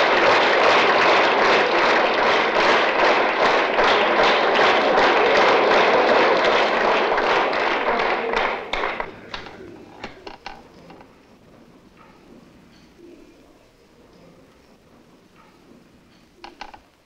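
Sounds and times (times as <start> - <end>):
audience applause: 0.0 - 11.1.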